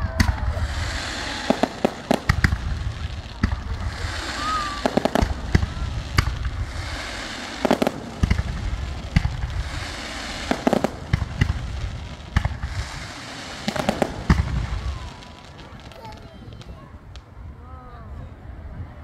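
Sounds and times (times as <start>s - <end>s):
fireworks hissing: 0.0s - 17.2s
fireworks bangs and crackling: 0.0s - 17.5s.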